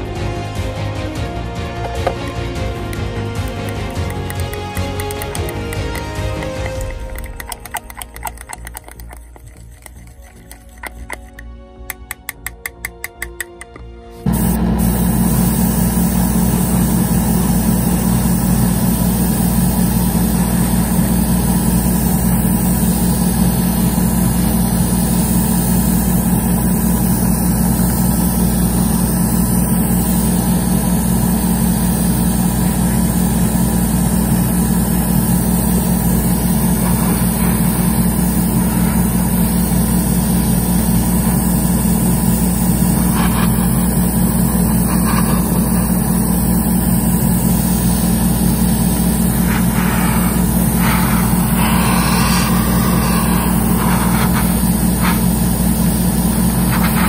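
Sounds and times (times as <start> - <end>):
compressor humming: 1.0 - 57.0
airbrush spraying hiss: 14.1 - 57.0.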